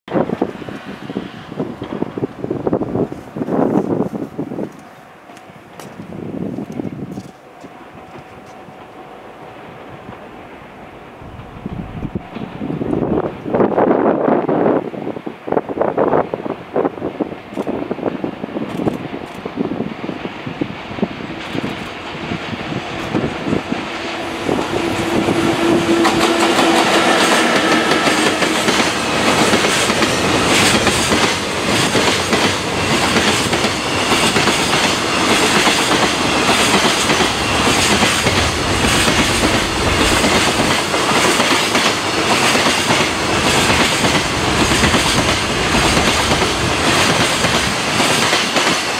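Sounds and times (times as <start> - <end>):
clickety-clack of train wheels: 0.1 - 9.0, 16.1 - 48.9
steady tone: 9.4 - 13.5, 23.6 - 31.1, 36.2 - 42.2
freight wagons rumbling: 24.2 - 48.2.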